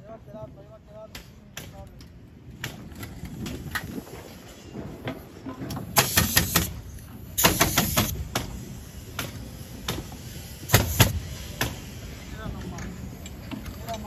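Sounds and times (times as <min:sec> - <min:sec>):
nail gun firing into wood: 0:06.0 - 0:06.8, 0:07.4 - 0:08.5.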